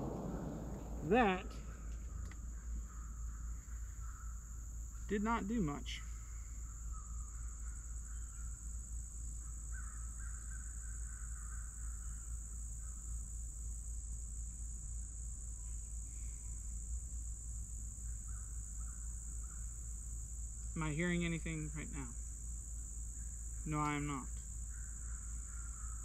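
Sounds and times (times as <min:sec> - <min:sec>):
low rumble: 0:00.0 - 0:02.9
faint animal calls: 0:00.0 - 0:13.3, 0:23.2 - 0:26.0.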